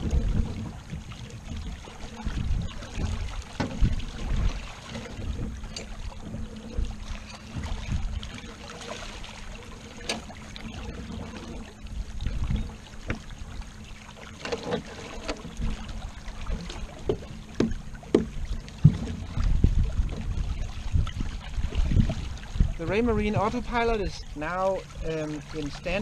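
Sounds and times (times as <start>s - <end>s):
wind rumble on microphone: 0.0s - 14.0s, 14.6s - 26.0s
water rushing past hull: 0.0s - 26.0s
sharp clicks and knocks: 16.5s - 19.2s.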